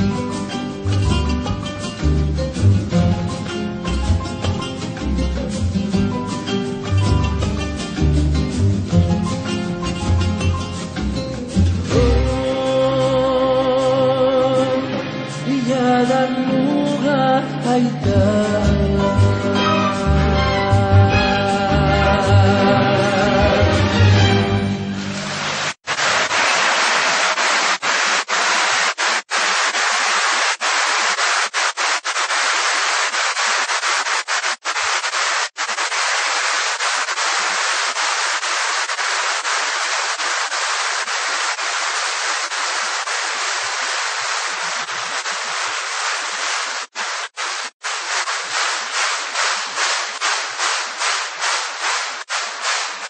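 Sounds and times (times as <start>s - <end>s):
loud hissing microphone noise: 25.2s - 53.0s.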